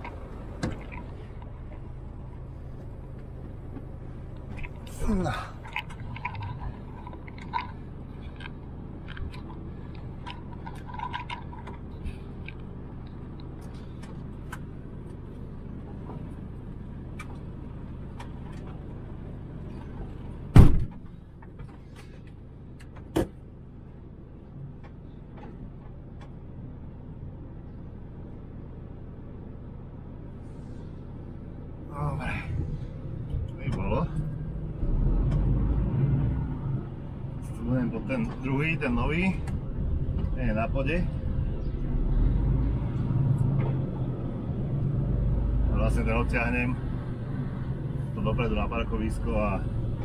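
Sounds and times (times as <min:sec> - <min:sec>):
truck diesel engine idling: 0:00.0 - 0:34.8
clicks and knocks in cab: 0:20.5 - 0:23.4
heavy thump: 0:20.6 - 0:21.0.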